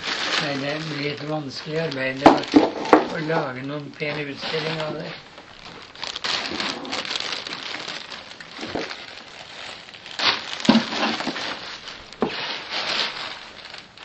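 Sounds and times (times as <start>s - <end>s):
crinkling and rustling: 0.0s - 14.0s.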